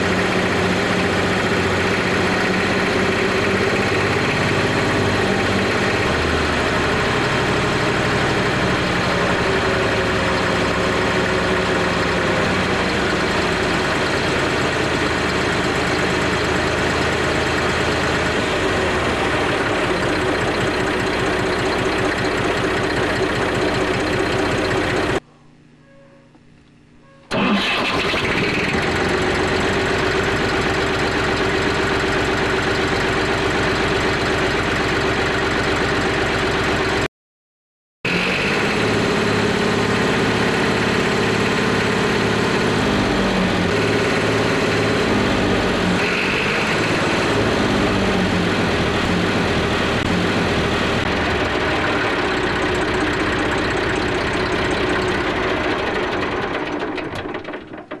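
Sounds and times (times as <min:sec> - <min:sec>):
diesel tractor engine running: 0:00.0 - 0:25.2, 0:27.3 - 0:37.1, 0:38.1 - 0:58.0.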